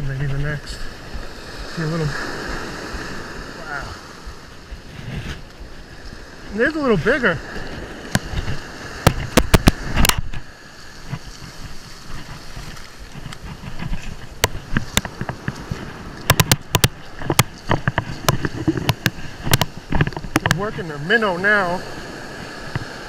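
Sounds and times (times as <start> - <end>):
surf washing over sand: 0.0 - 23.0
sharp clicks and knocks: 8.1 - 10.4, 13.1 - 15.6, 16.2 - 20.6.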